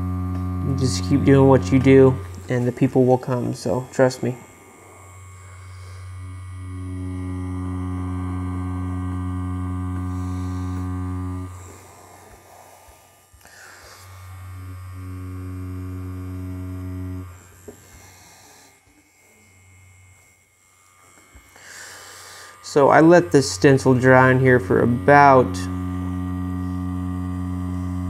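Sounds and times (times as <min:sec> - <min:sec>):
tattoo machine humming: 0:00.0 - 0:28.0.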